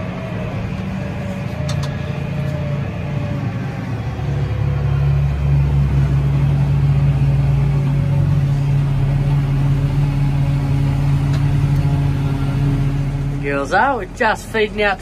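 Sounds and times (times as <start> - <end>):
tractor engine droning: 0.0 - 15.0.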